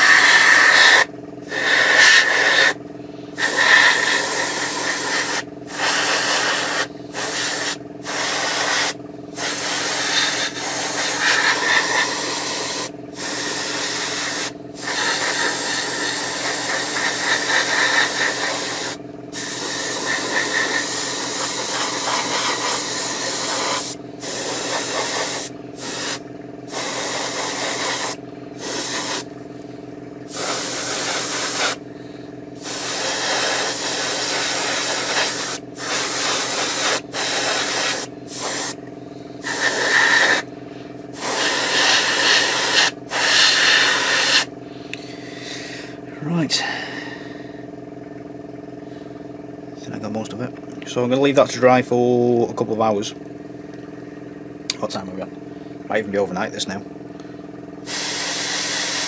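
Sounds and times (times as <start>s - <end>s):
airbrush spraying hiss: 0.0s - 2.8s, 3.4s - 29.3s, 30.3s - 31.8s, 32.6s - 38.8s, 39.4s - 40.5s, 41.2s - 44.5s, 57.9s - 59.0s
steady low hum: 0.0s - 59.0s.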